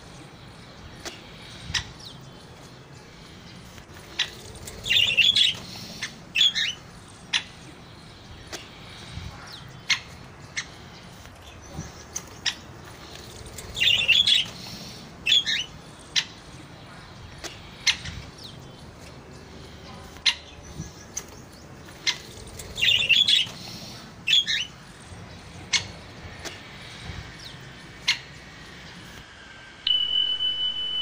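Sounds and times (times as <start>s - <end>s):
woodpecker calls: 0.2s - 28.7s
steady high tone: 28.3s - 31.0s.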